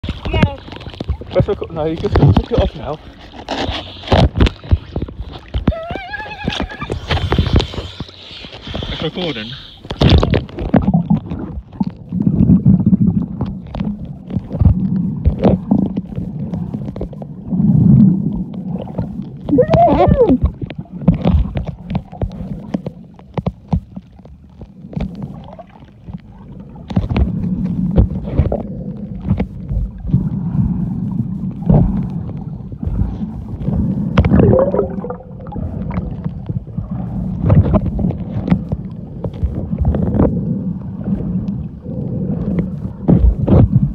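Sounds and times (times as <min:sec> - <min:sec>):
water sloshing underwater: 0:00.0 - 0:43.9
low rumbling: 0:26.2 - 0:43.9.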